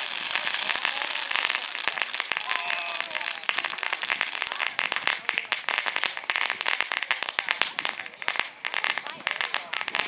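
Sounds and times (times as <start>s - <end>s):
firework fountain crackling: 0.0s - 10.0s.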